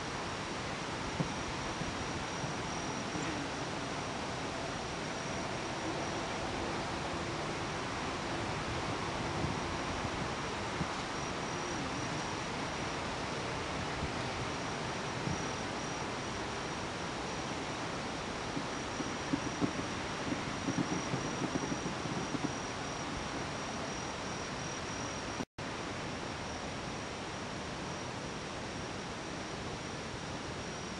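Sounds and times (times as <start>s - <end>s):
outdoor night hiss: 0.0s - 30.9s
high insect trill: 1.2s - 8.2s, 8.9s - 25.4s
distant fireworks crackling: 17.0s - 23.9s.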